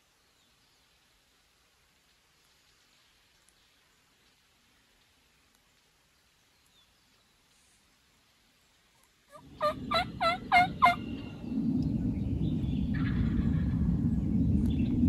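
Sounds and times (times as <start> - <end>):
turkey yelps: 9.3 - 11.0
low rushing noise: 9.3 - 15.0.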